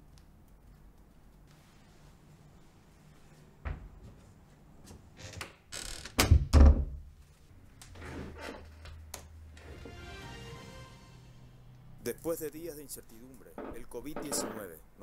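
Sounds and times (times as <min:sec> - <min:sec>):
rustling: 0:00.0 - 0:04.7.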